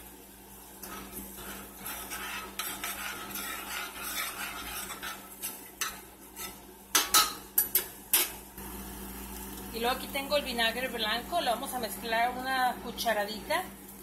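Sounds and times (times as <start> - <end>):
spoon stirring and scraping in a pot: 0.7 - 8.5.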